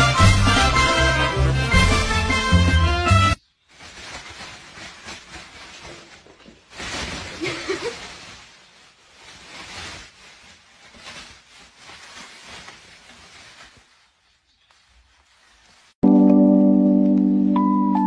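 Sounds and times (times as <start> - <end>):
plastic bag rustling: 3.4 - 16.0.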